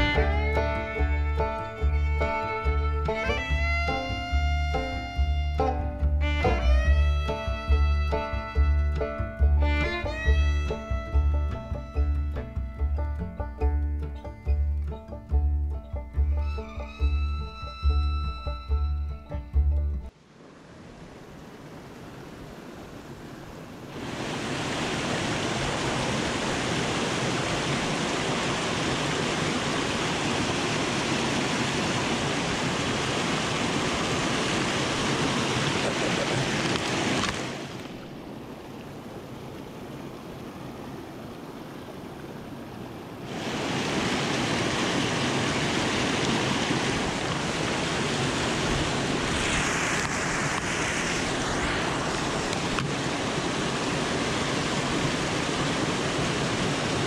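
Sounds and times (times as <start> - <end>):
water rushing over rocks: 20.1 - 57.0.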